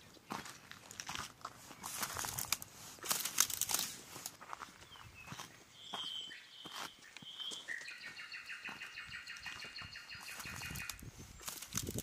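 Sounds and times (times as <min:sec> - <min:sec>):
crackles: 0:00.8 - 0:04.4, 0:10.5 - 0:12.0
bird song whistles and trill: 0:04.8 - 0:11.7.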